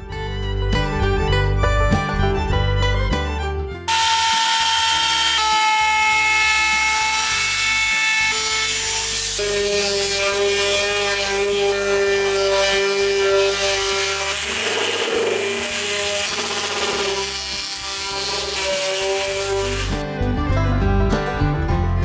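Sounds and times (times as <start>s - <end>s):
orbital sander sanding wood: 3.9s - 20.0s
router trimming wood: 3.9s - 20.0s.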